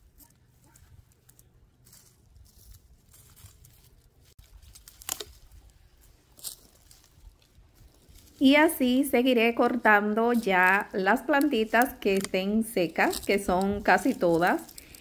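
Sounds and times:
dry plant stems rustling: 0.0 - 15.0
loppers snipping: 11.0 - 15.0.

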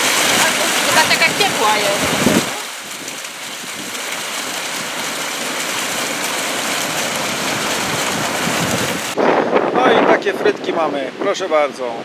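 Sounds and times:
fountain water splashing: 0.0 - 9.2.

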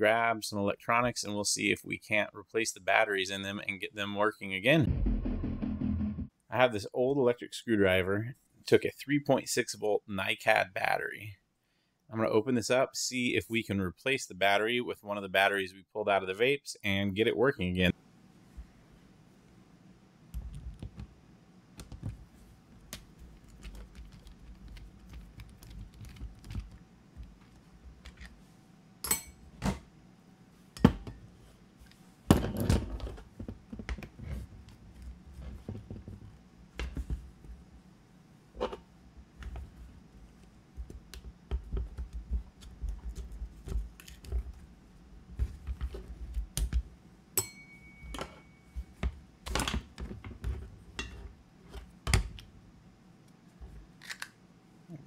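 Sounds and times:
low handling rumble: 4.8 - 6.3.

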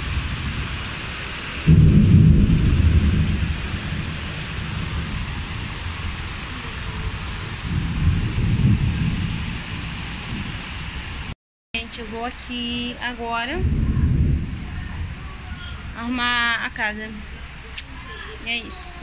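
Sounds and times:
thunder rumble: 0.0 - 11.4, 13.5 - 16.6
heavy rain: 0.0 - 19.0.

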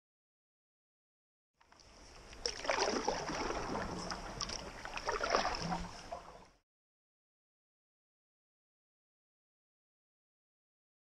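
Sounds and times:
paddle pulling through water: 1.6 - 6.6
water running against board: 1.8 - 6.6.

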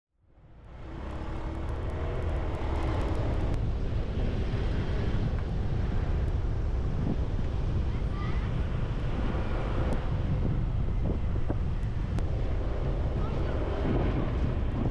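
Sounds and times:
traffic: 0.2 - 14.9
wind on microphone: 0.6 - 14.9.

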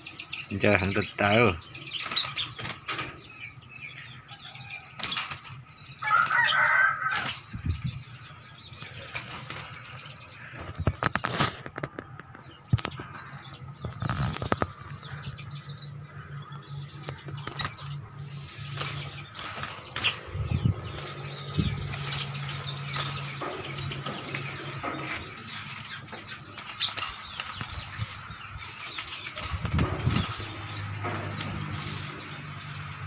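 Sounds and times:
birds flapping against wire cage: 1.9 - 3.3, 4.8 - 8.0, 8.8 - 12.0, 17.2 - 33.0
steady low hum: 12.4 - 33.0.

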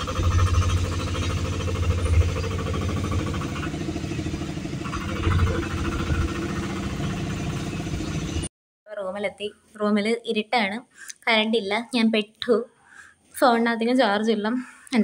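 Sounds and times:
vehicle engine and road rumble: 0.0 - 8.5.

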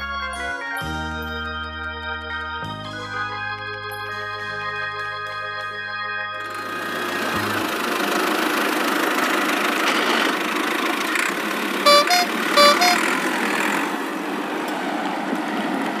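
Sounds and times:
toy tractor motor: 6.4 - 14.0
two-note horn beep: 11.9 - 13.1.

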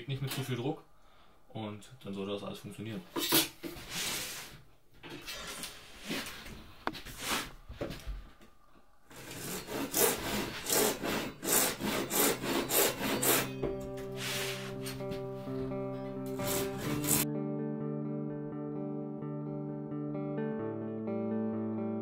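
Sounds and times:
hand saw rasping through acrylic: 9.1 - 15.1, 16.4 - 17.2
music with held notes: 11.8 - 22.0.

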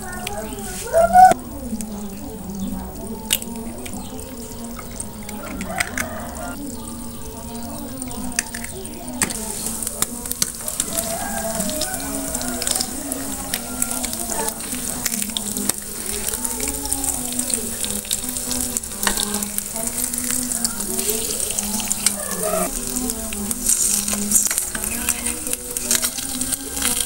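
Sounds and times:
eggs sizzling in oil: 0.0 - 27.0.

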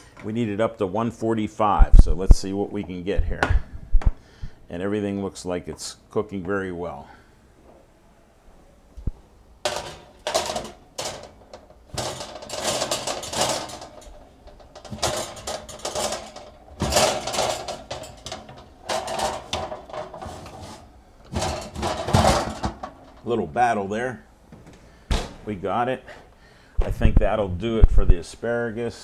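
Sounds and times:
utensil scraping a metal baking sheet: 9.7 - 22.7.

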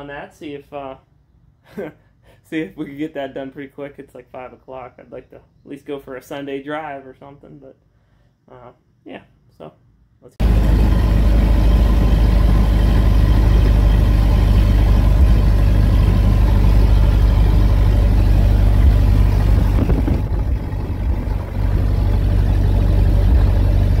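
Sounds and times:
car engine under load: 10.4 - 24.0
road noise: 10.4 - 24.0
wind buffeting microphone: 17.8 - 22.2.

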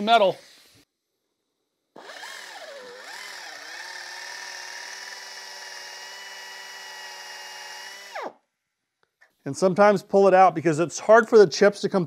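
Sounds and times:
air drill whining into metal: 2.0 - 8.4.

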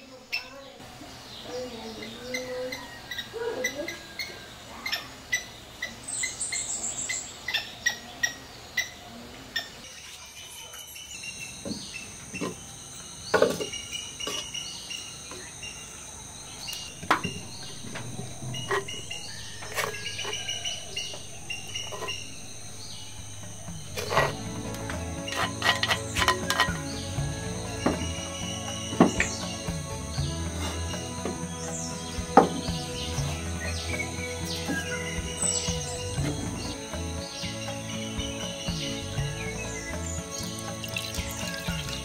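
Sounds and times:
birds chirping: 0.0 - 42.0
high insect buzz: 10.2 - 42.0
clay pots knocking: 16.8 - 28.2.

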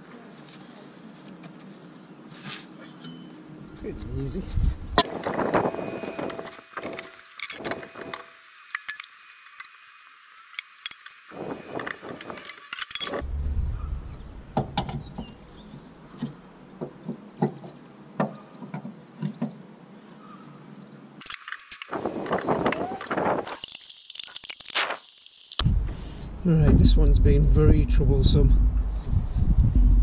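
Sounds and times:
wheel brace clinking on wheel nuts: 10.6 - 13.2.

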